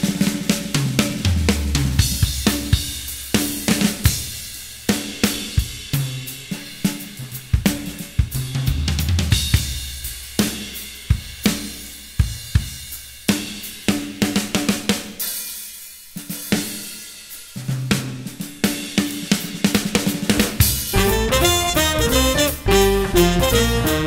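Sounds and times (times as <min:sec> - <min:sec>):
cymbals and hi-hat: 0:00.0 - 0:24.0
drum kit beat: 0:00.0 - 0:24.0
bass line: 0:20.8 - 0:24.0.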